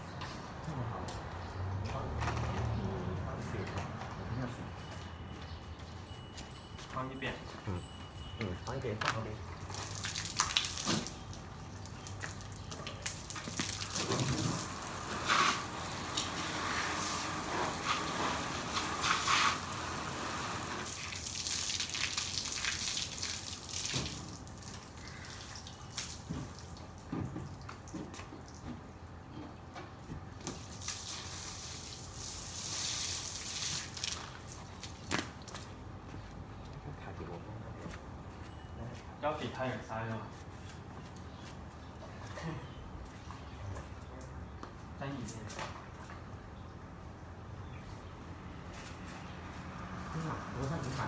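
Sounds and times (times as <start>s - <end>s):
water splashing and dripping: 9.4s - 29.1s, 30.4s - 35.8s
hose spraying water on car: 13.3s - 24.8s, 30.6s - 34.5s.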